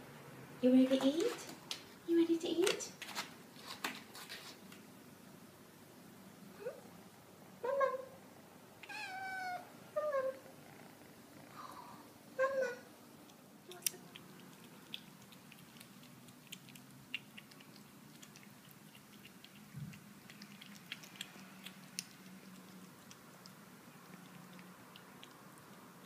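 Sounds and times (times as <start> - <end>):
kitten meowing: 8.8 - 10.4
kitten chewing clicks: 13.2 - 26.0.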